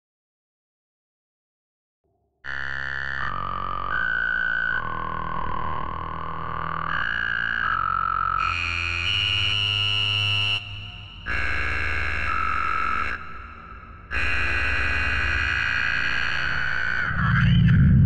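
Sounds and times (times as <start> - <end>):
deep bass tone: 17.0 - 18.0.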